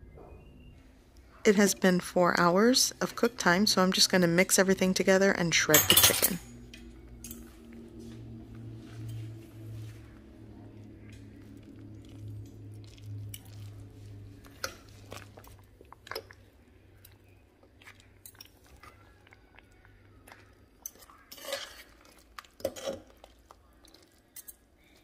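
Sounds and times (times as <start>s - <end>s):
soft squishing: 7.0s - 25.0s.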